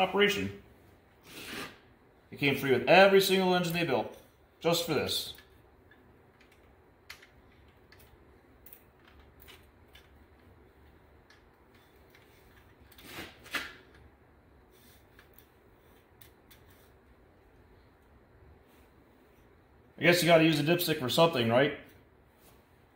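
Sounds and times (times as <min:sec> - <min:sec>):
metal scrape: 0:01.2 - 0:01.8.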